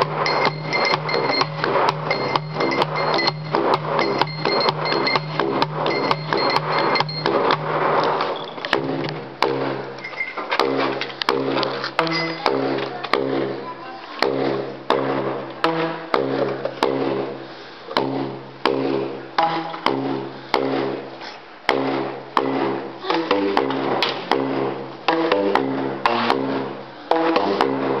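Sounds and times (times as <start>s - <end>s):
plastic tubes struck on floor: 14.2s - 17.1s, 17.9s - 21.0s, 21.7s - 28.0s.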